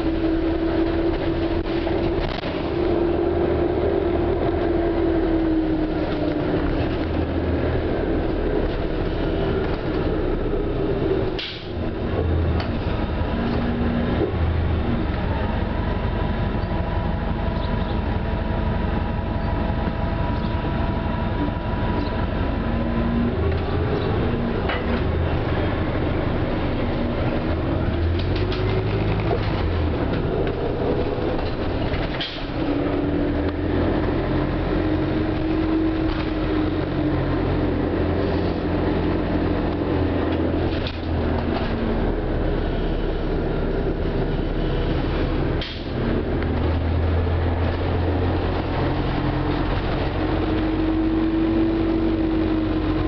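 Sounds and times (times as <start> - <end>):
bus body rattles: 0.0 - 5.1, 23.4 - 50.8
bus engine whining: 0.0 - 53.0
road noise: 0.0 - 53.0.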